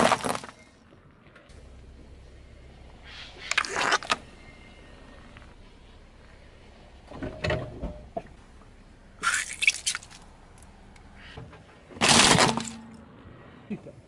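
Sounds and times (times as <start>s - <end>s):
jelly toy squashed by tyre: 12.0s - 12.8s.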